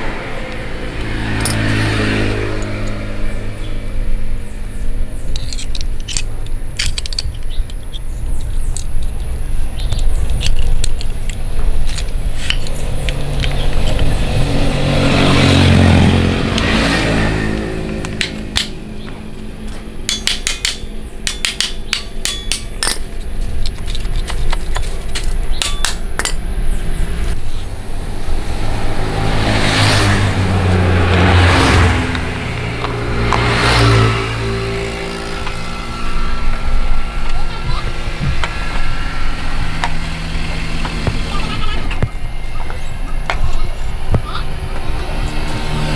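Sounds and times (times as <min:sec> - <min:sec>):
vehicle engines passing by: 0:00.0 - 0:45.9
sharp metallic clinks: 0:18.2 - 0:23.4, 0:25.4 - 0:26.5.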